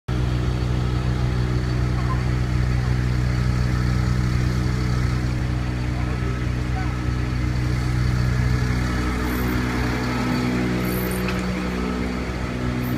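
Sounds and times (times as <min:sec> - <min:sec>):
engine idling: 0:00.1 - 0:12.9.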